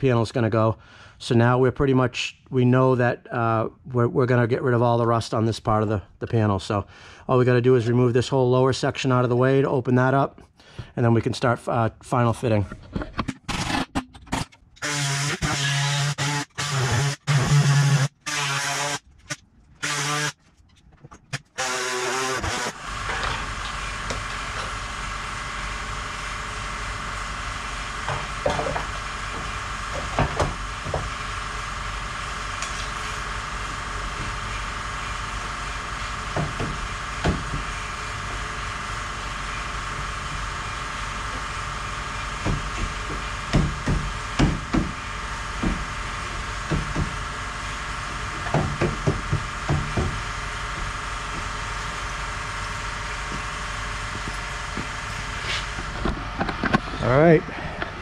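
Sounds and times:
steady mechanical hum: 14.4s - 58.0s.

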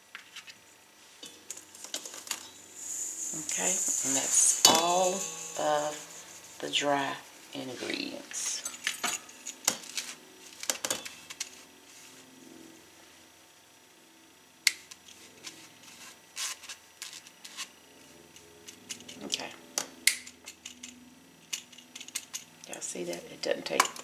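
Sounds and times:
sifter tapping against bowl: 1.2s - 6.6s
spatula scraping through sifter: 1.2s - 8.7s.

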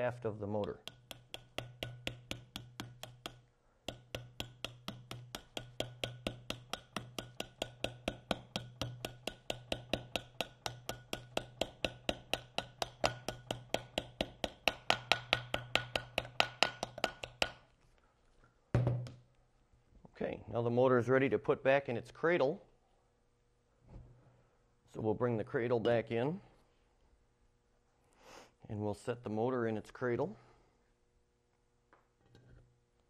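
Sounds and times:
hammer tapping rubber mount: 0.6s - 17.7s.

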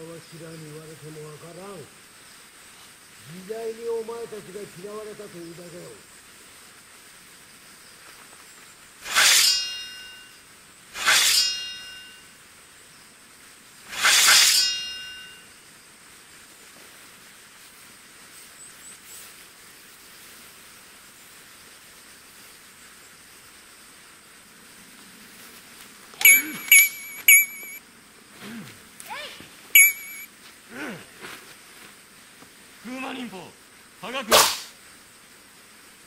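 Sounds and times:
metallic sword clashes: 14.0s - 15.2s, 26.2s - 27.8s.

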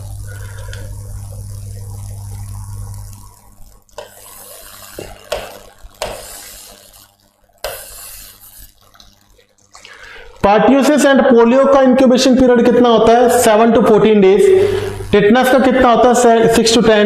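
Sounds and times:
low steady hum: 0.0s - 10.6s, 12.4s - 17.0s
chalk scraping on chalkboard: 4.0s - 6.8s, 7.6s - 8.7s.

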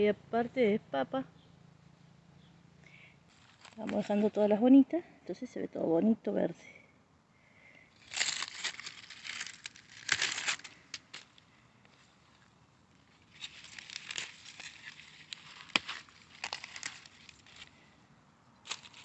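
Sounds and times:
leaves rustling and crackling: 3.3s - 4.5s, 7.9s - 18.0s, 18.6s - 19.0s.

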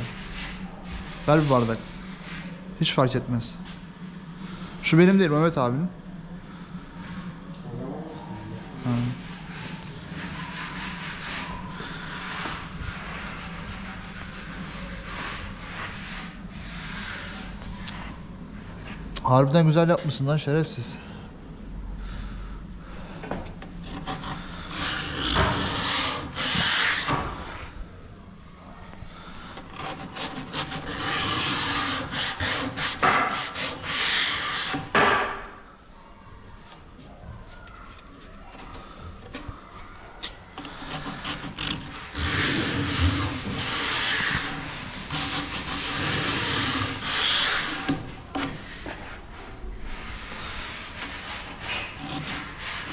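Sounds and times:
sandpaper scraping on wood: 0.0s - 2.5s, 23.9s - 27.2s, 29.7s - 35.0s, 40.6s - 52.9s.

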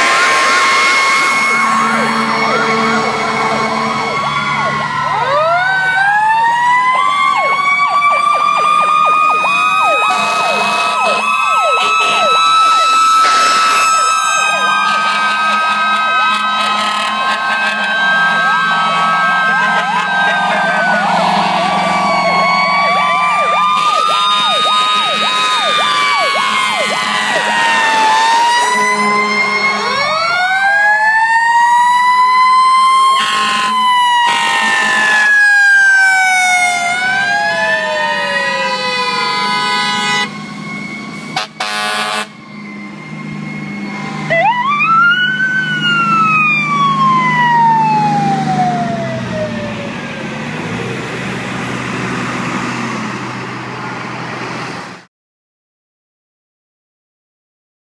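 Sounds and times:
loud horn blasts: 0.0s - 4.6s, 9.9s - 22.7s, 23.6s - 30.3s, 33.1s - 35.5s, 38.8s - 42.4s
fire truck sirens wailing: 0.0s - 55.1s
low diesel engine drone: 0.0s - 55.1s.

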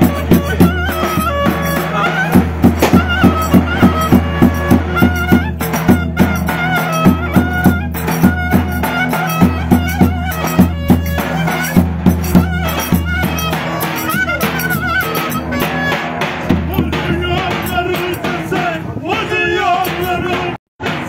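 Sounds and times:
clarinet melody: 0.0s - 16.1s
bass drum beats: 0.0s - 21.0s.

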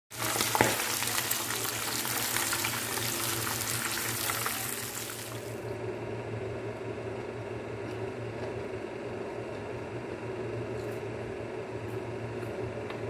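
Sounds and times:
birds frying in hot oil: 0.1s - 5.7s.

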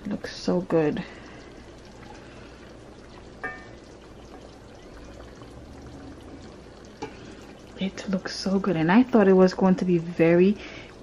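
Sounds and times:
broth bubbling in a pot: 0.0s - 11.0s
ladle pouring liquid: 0.2s - 8.9s.

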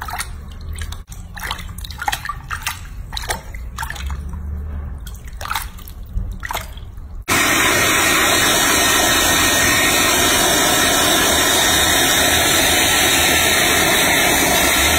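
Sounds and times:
water sloshing and splashing: 0.0s - 7.3s
hair dryer blowing: 7.3s - 14.9s.

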